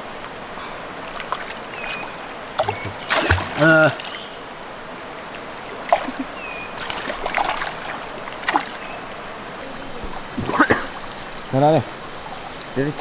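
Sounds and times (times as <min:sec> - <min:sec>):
high insect drone: 0:00.0 - 0:13.0
water splashing around wading person: 0:01.1 - 0:04.3, 0:05.7 - 0:09.0.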